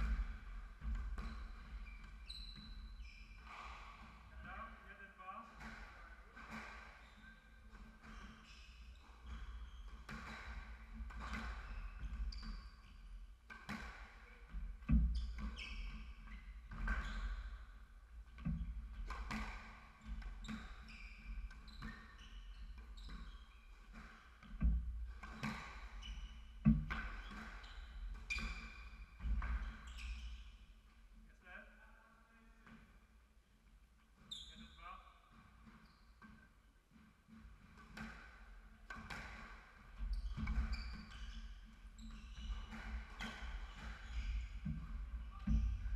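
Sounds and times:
shoes squeaking on wooden floor: 0.0s - 4.7s, 5.6s - 13.2s, 13.8s - 30.6s, 34.2s - 45.9s
squash ball hitting rackets and walls: 5.5s - 8.4s, 9.2s - 12.5s, 13.4s - 17.8s, 18.4s - 29.9s, 37.2s - 45.9s.

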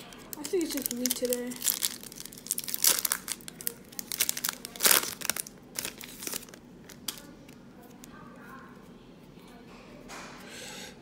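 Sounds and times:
foil wrapper crinkling: 0.0s - 8.2s.

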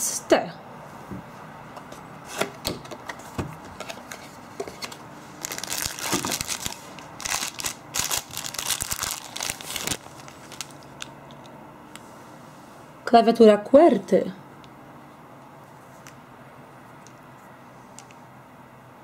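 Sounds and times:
plastic bag crinkling: 4.8s - 11.2s.

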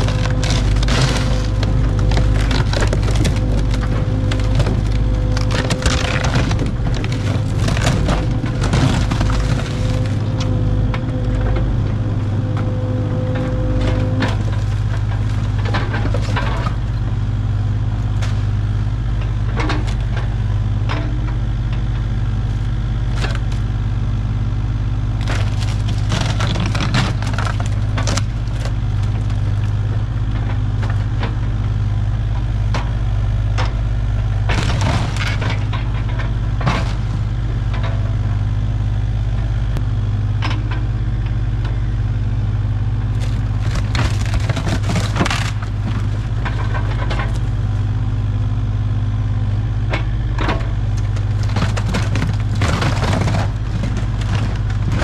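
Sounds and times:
wooden boards cracking and crashing: 0.0s - 10.4s, 25.2s - 29.8s, 34.5s - 35.8s, 43.2s - 47.6s, 51.0s - 55.0s
excavator diesel engine running: 0.0s - 55.0s.

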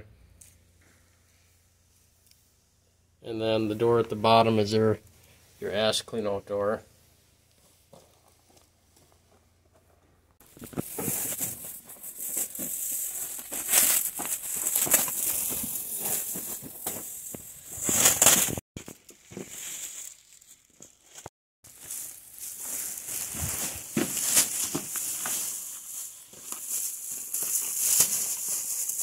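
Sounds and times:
plastic wrap crinkling and tearing: 10.4s - 29.0s.

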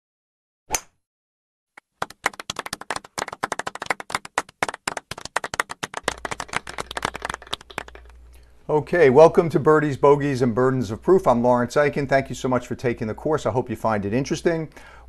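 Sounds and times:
people clapping: 1.8s - 8.3s.

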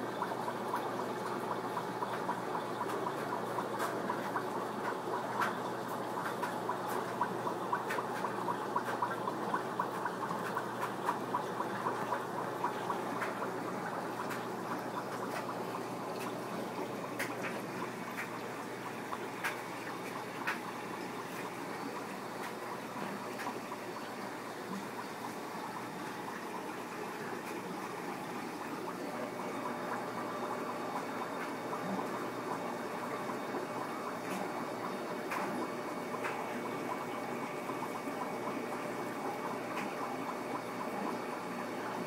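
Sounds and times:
aquarium filter bubbling: 0.0s - 42.0s
small pops and ticks: 2.1s - 11.9s, 12.6s - 13.4s, 17.2s - 18.4s, 19.2s - 20.7s, 36.2s - 36.4s.

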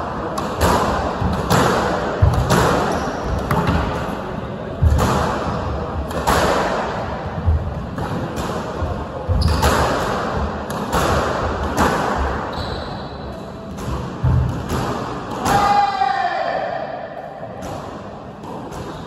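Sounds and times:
shoe squeak: 2.8s - 3.5s, 9.3s - 9.8s, 12.5s - 13.4s.

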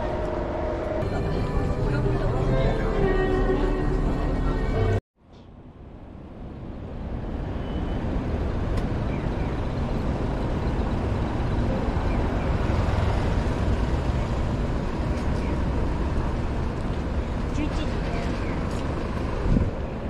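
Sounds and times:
traffic rumble: 0.0s - 20.0s
murmur of voices: 1.0s - 5.0s.

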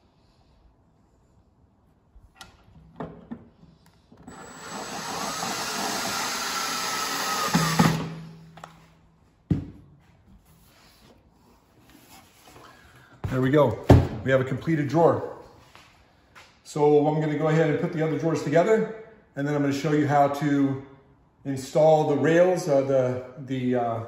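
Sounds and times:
cordless drill whining: 4.1s - 8.4s.

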